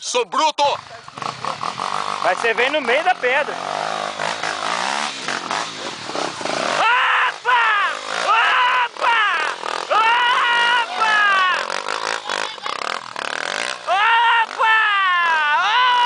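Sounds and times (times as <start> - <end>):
dirt bike engine revving: 0.7 - 16.0
people shouting and cheering: 6.8 - 12.9, 13.8 - 16.0.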